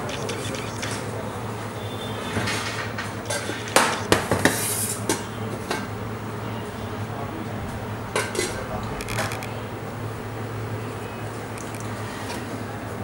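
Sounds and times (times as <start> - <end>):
steady low hum: 5.0 - 13.0.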